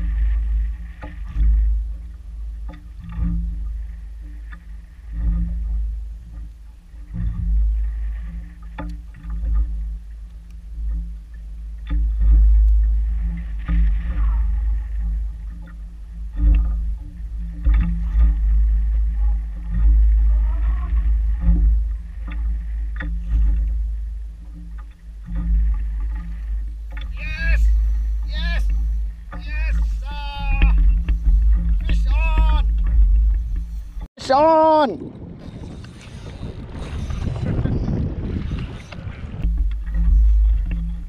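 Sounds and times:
water slapping against hull: 0:00.0 - 0:41.0
wind buffeting microphone: 0:26.9 - 0:41.0.

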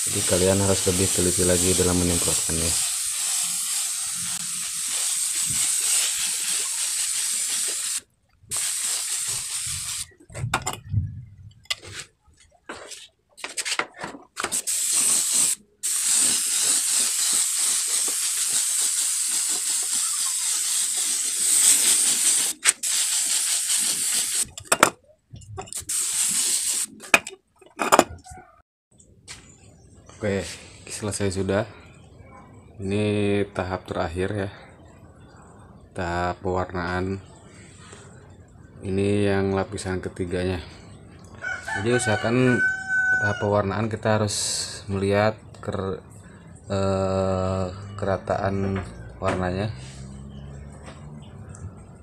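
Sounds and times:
paint spray gun hissing: 0:00.0 - 0:10.1, 0:14.5 - 0:24.5, 0:25.8 - 0:26.9.

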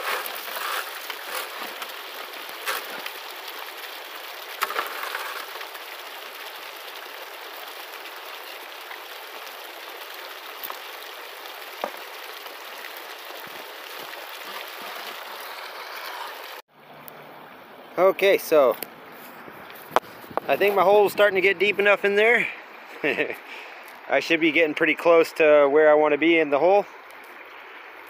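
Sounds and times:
gravel knocks in hopper: 0:00.0 - 0:03.3
water rushing down metal sluice: 0:00.0 - 0:16.6.

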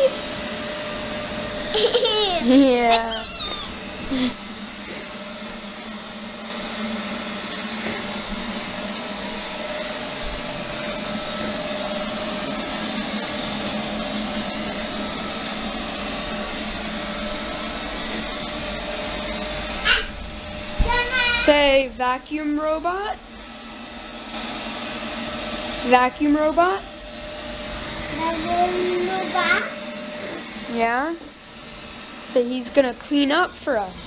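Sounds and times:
robot vacuum whirring: 0:00.0 - 0:34.0
child's voice: 0:02.5 - 0:03.7, 0:20.8 - 0:21.6, 0:28.2 - 0:29.8.

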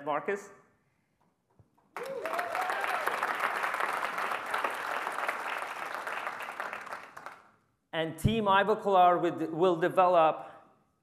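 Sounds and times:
audience applauding: 0:01.9 - 0:07.5
person cheering: 0:02.0 - 0:03.4.

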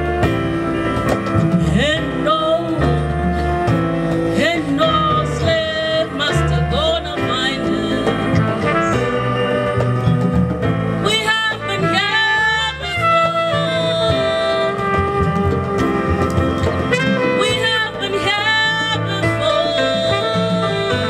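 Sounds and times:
jazz band playing: 0:00.0 - 0:21.0
woman singing: 0:01.5 - 0:03.7, 0:04.3 - 0:10.1, 0:11.0 - 0:15.4, 0:17.1 - 0:21.0.

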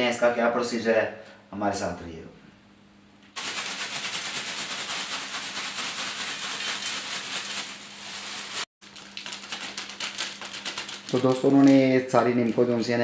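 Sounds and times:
snack mix rattling into tray: 0:08.8 - 0:11.8.

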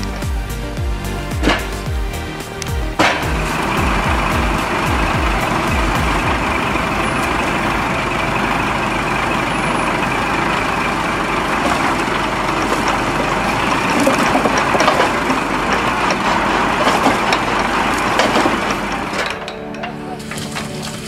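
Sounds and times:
truck engine running: 0:00.0 - 0:21.0
logs knocking on logs: 0:01.4 - 0:02.1, 0:02.7 - 0:06.5, 0:11.2 - 0:21.0.

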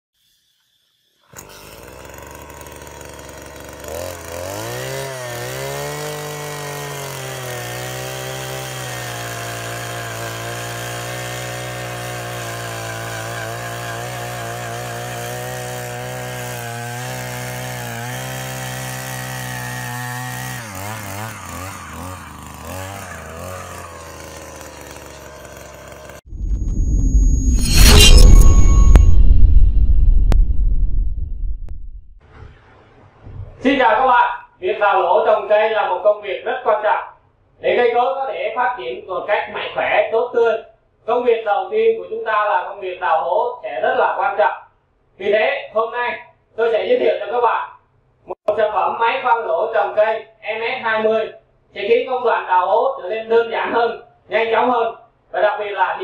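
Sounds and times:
earth auger engine drilling: 0:01.2 - 0:28.5.

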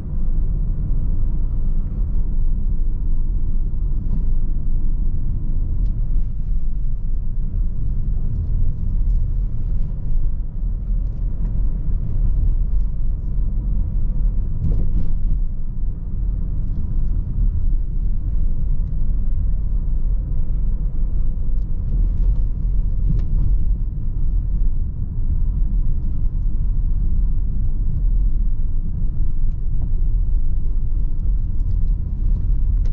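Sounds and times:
car engine and road rumble: 0:00.0 - 0:32.9.

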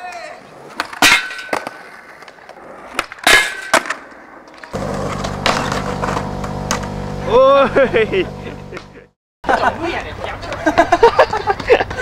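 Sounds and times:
steady low hum: 0:04.8 - 0:09.2.

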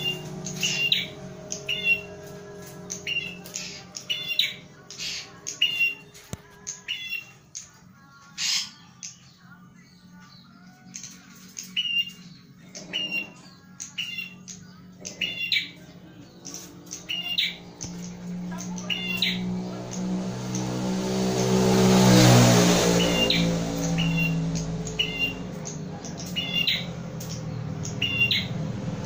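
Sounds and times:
bird calling in squawky notes: 0:00.0 - 0:02.2, 0:02.8 - 0:07.4, 0:11.6 - 0:20.0, 0:23.0 - 0:28.7.

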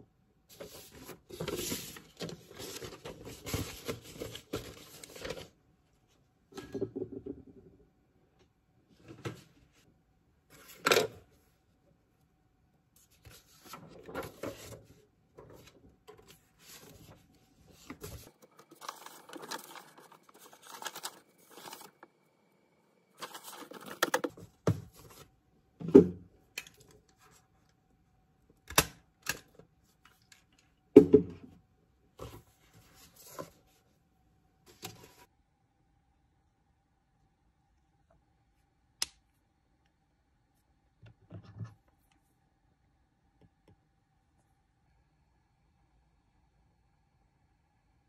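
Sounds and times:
paper rustling: 0:00.5 - 0:05.6, 0:13.0 - 0:22.1, 0:23.2 - 0:25.3.

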